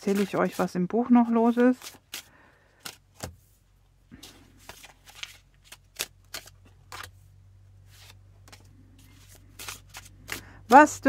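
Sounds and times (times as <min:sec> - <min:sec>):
cards clicking and slapping: 0:01.8 - 0:03.4, 0:04.6 - 0:07.1, 0:08.0 - 0:10.9.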